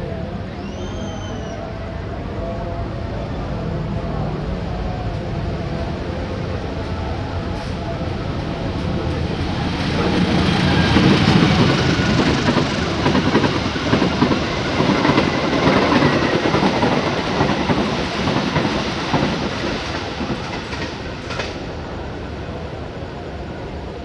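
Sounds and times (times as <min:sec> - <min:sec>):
diesel locomotive passing: 0:00.0 - 0:24.0
train wheels clattering over rails: 0:08.3 - 0:21.7.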